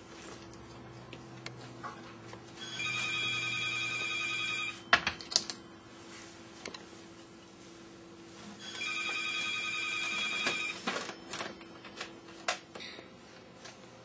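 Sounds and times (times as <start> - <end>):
electronic ringing tone: 2.6 - 5.1, 8.6 - 11.5.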